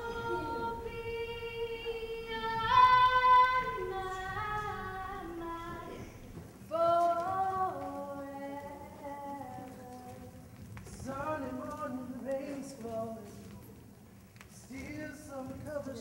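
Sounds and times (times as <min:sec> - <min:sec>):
woman singing long held notes: 0:00.0 - 0:06.1.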